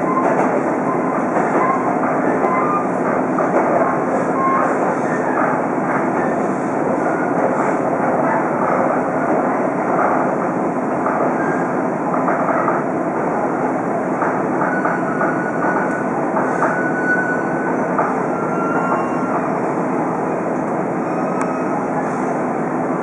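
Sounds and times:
train running on rails: 0:00.0 - 0:23.0.

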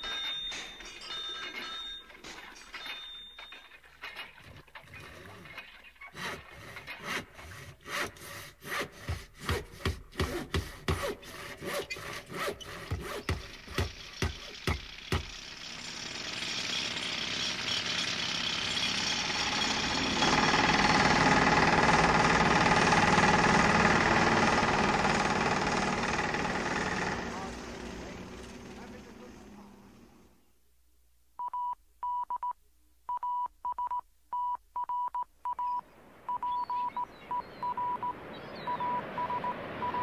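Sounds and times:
tractor engine: 0:00.0 - 0:30.5, 0:37.1 - 0:40.0
hand saw cutting wood: 0:04.8 - 0:29.1.

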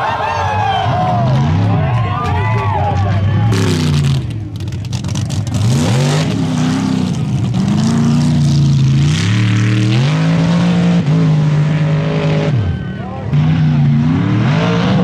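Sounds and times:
tires spinning in loose dirt: 0:00.0 - 0:15.0
buggy engine revving hard: 0:03.4 - 0:15.0.

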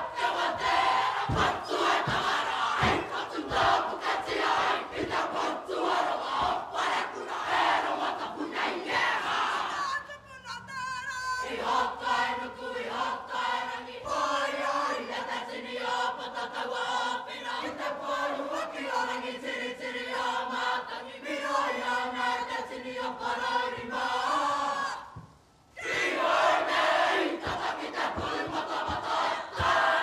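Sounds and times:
group singing together: 0:00.0 - 0:10.0, 0:11.4 - 0:30.0
single voice singing: 0:08.2 - 0:25.2, 0:25.8 - 0:30.0.

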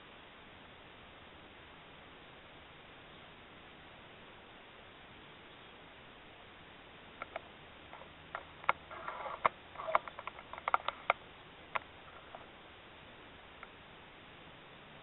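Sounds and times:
short scraping rustle: 0:08.0 - 0:11.1.

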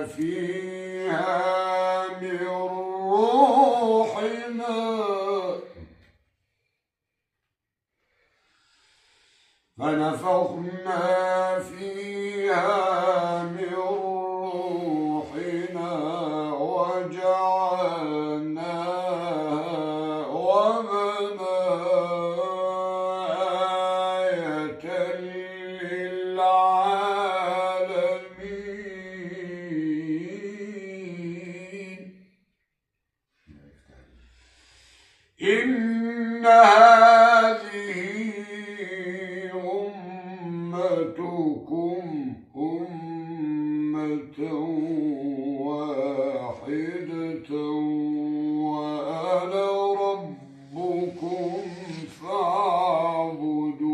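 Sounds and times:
man reciting melodically: 0:00.0 - 0:06.1, 0:09.7 - 0:32.4, 0:33.5 - 0:53.9.

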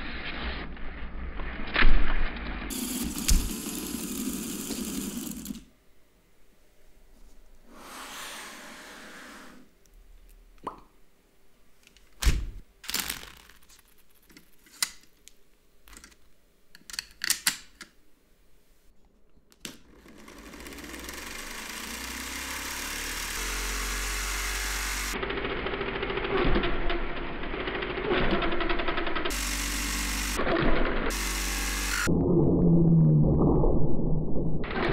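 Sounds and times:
electric motor flywheel whir: 0:02.7 - 0:05.7, 0:19.9 - 0:32.1
plastic parts clicking: 0:12.8 - 0:18.0.

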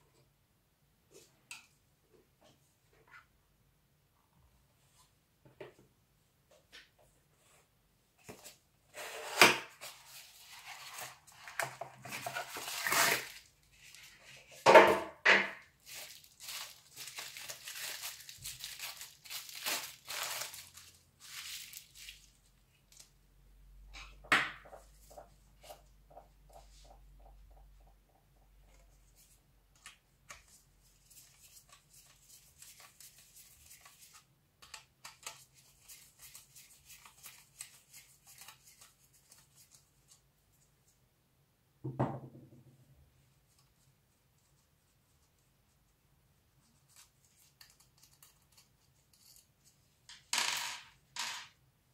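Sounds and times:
cardboard tearing and crumpling: 0:12.1 - 0:13.5, 0:15.8 - 0:22.3
bubble-wrap bag crinkling: 0:12.2 - 0:14.2, 0:15.8 - 0:22.4.

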